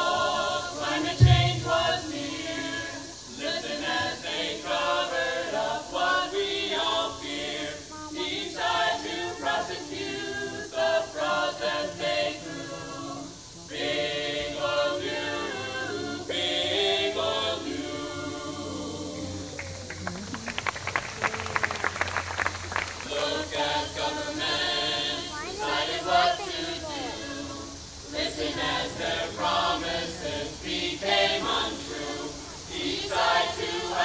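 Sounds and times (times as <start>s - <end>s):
group singing in chorus: 0.0s - 19.9s, 22.7s - 34.0s
people clapping: 19.5s - 24.1s.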